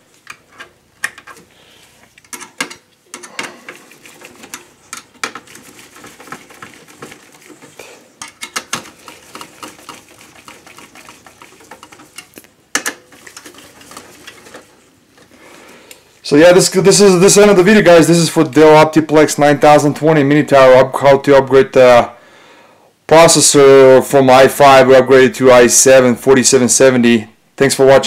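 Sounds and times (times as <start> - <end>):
screwdriver clicks and rattles in metal case: 8.2 - 9.6.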